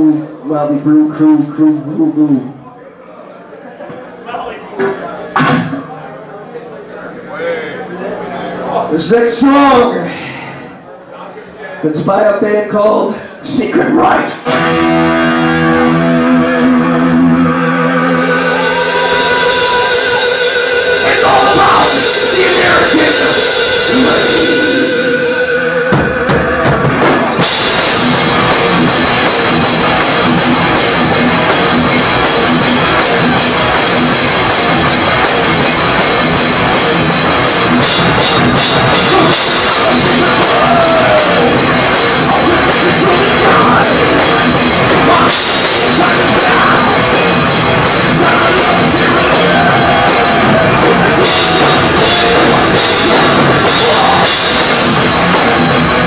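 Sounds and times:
thrash metal band playing: 0:13.5 - 0:56.0
pounding drum kit: 0:14.1 - 0:56.0.

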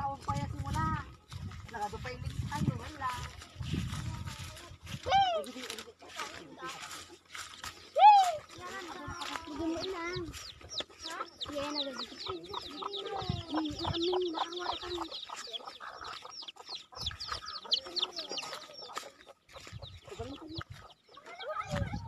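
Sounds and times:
chickens clucking: 0:00.0 - 0:22.0.

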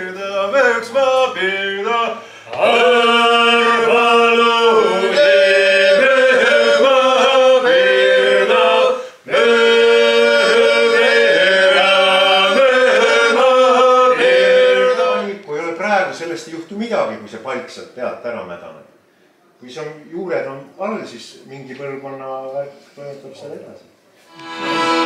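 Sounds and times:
men singing unaccompanied: 0:00.0 - 0:15.4.

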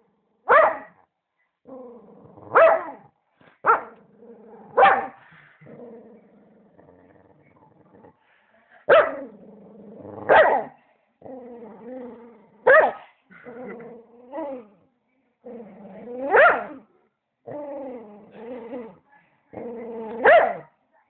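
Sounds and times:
dog barking loudly: 0:00.5 - 0:00.9, 0:02.5 - 0:03.0, 0:03.6 - 0:03.9, 0:04.8 - 0:05.2, 0:08.9 - 0:09.2, 0:10.3 - 0:10.7, 0:12.7 - 0:13.1, 0:16.3 - 0:16.7, 0:20.2 - 0:20.7
dog growling: 0:01.6 - 0:02.6, 0:03.8 - 0:08.5, 0:09.1 - 0:12.7, 0:13.3 - 0:20.3.

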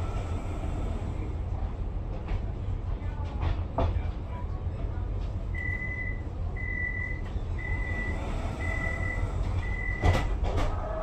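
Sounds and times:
low hum of tram: 0:00.0 - 0:11.0
door warning beeps: 0:05.6 - 0:10.3.

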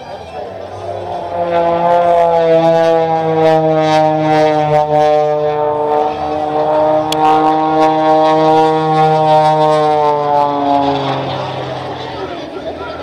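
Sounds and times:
biplane engine droning: 0:00.0 - 0:13.0.

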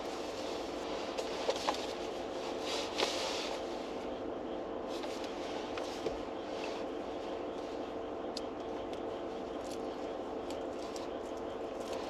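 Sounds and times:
car cabin hum and hiss: 0:00.0 - 0:12.0.

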